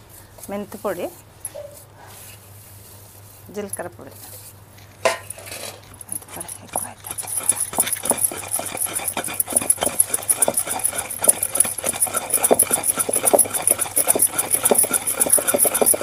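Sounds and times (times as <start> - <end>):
fast even ticking: 6.0 - 16.0
pestle pounding paste in mortar: 6.0 - 16.0.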